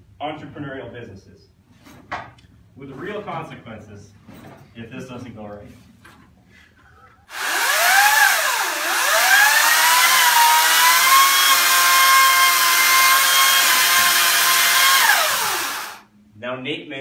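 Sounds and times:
electric chainsaw whining: 7.3 - 16.1.

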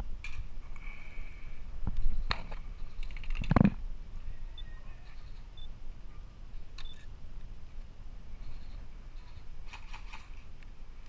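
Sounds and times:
sharp clicks: 3.0 - 3.8.

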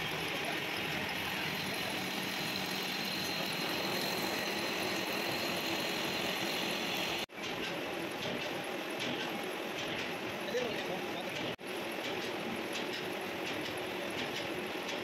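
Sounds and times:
metal lathe cutting steel: 0.0 - 7.3.

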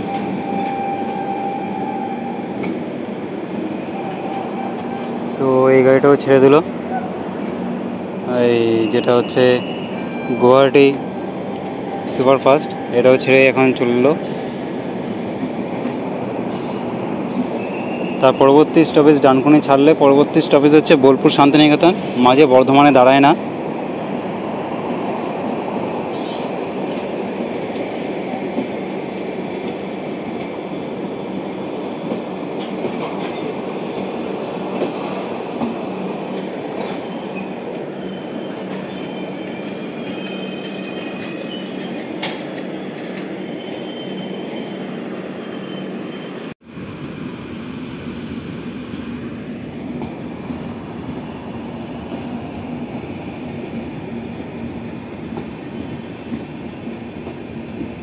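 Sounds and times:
train wheels rumbling: 0.0 - 58.0
clickety-clack over rail joints: 2.2 - 5.5, 14.1 - 17.9, 24.8 - 30.6, 31.9 - 37.8, 38.4 - 43.4, 49.8 - 58.0
faint wheel squeals: 37.0 - 42.4, 43.5 - 46.5.

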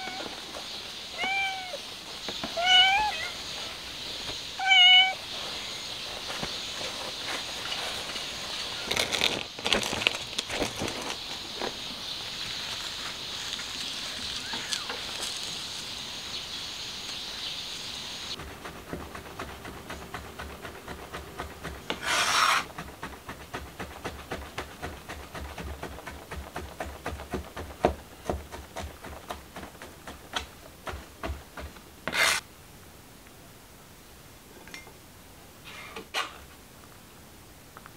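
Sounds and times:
steady high hiss: 0.0 - 23.9
rustling bursts: 18.3 - 32.4.

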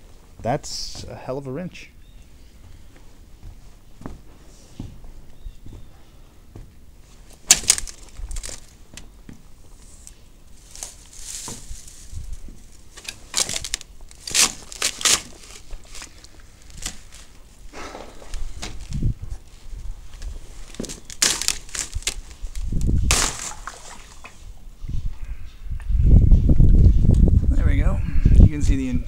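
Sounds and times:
dry debris crunching and rustling: 7.2 - 24.2.

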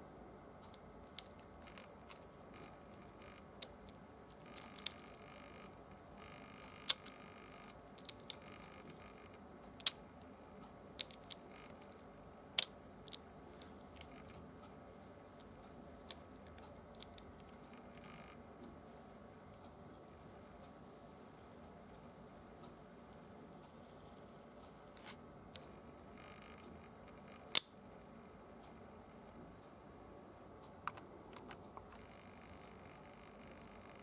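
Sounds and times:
faint steady hiss: 0.0 - 34.0
sharp clicks and ticks: 0.6 - 18.8, 22.6 - 27.8, 30.6 - 34.0.

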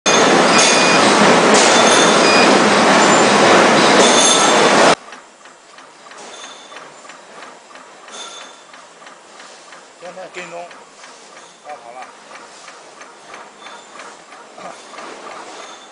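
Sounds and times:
label cutting machine ticking: 4.9 - 15.9.

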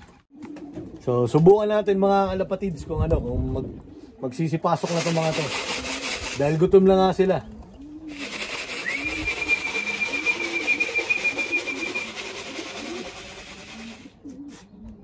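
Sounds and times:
pigeons cooing: 0.0 - 1.1, 3.2 - 15.0
grain rattling in a tub: 8.1 - 14.0
long whistled note: 8.8 - 12.1.

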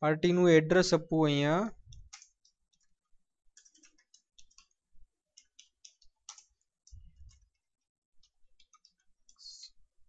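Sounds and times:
computer keyboard keystrokes: 1.8 - 9.5.

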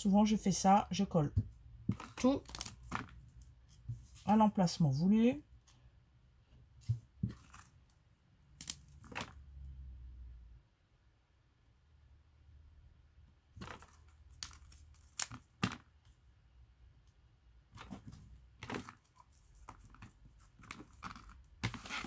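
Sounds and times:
paper and plastic crinkling: 17.8 - 22.0.

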